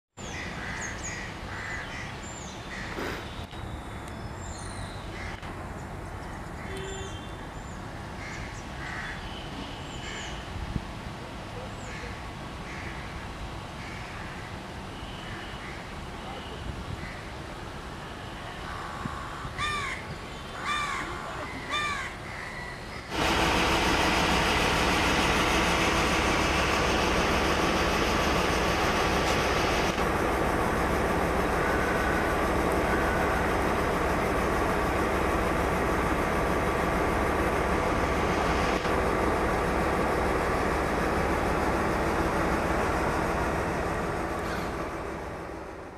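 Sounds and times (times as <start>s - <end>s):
crow cawing: 0.3s - 2.1s, 8.2s - 9.2s, 12.7s - 13.1s, 18.7s - 20.0s, 20.6s - 22.8s
loud steady rushing noise: 23.1s - 45.9s.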